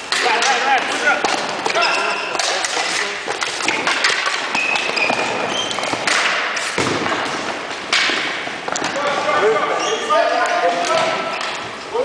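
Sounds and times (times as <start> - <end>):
hockey sticks and ball knocking: 0.0 - 9.4
echoing crowd noise: 0.0 - 12.0
shoe squeaks on gym floor: 1.7 - 2.3, 4.5 - 6.0, 9.7 - 10.2.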